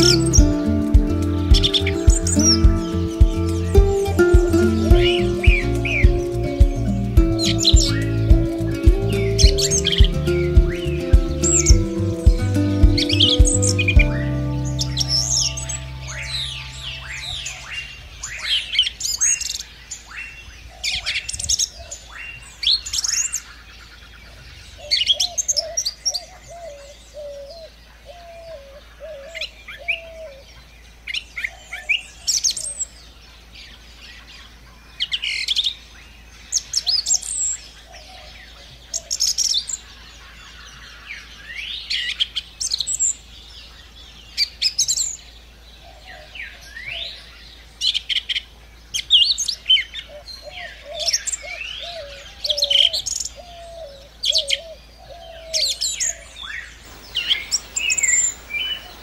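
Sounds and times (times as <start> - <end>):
lower wavering bird call: 0.0 - 18.1, 56.7 - 59.0
birds chirping: 0.0 - 30.5, 36.4 - 59.0.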